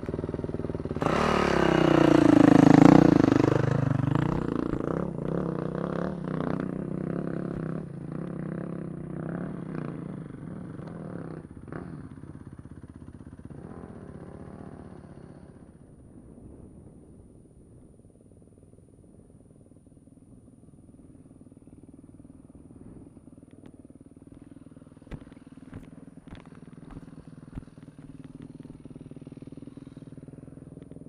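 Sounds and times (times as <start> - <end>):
dirt bike engine revving: 1.0 - 10.1.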